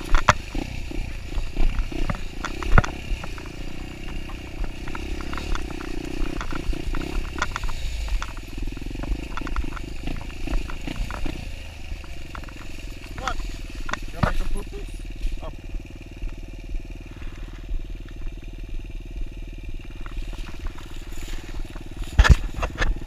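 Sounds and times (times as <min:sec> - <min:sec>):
dirt bike engine running: 0:00.0 - 0:23.0
light clicks and rattles: 0:01.3 - 0:15.4.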